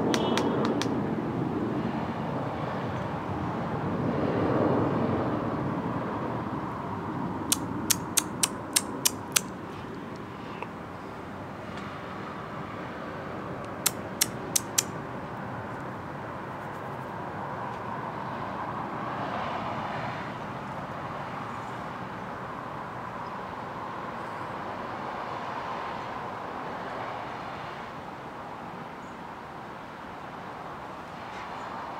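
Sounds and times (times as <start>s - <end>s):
vehicle passing: 0.0s - 10.6s
distant road traffic: 0.0s - 31.9s
sharp clicks: 0.1s - 1.0s, 7.5s - 9.5s, 13.6s - 15.0s.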